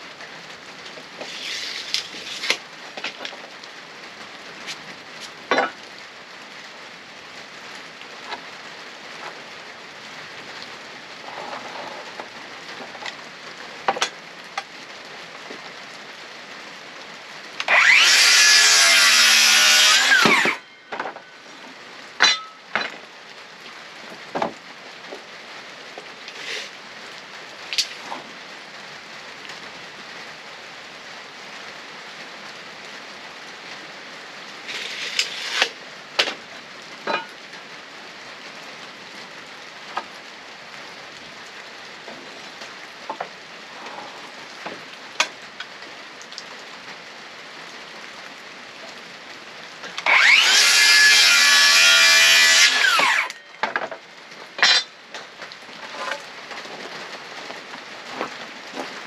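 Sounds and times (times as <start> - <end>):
rain hiss: 0.0 - 51.2, 52.8 - 59.0
power saw cutting wood: 1.2 - 2.6, 17.6 - 20.7, 26.3 - 26.7, 34.7 - 35.8, 50.0 - 53.4.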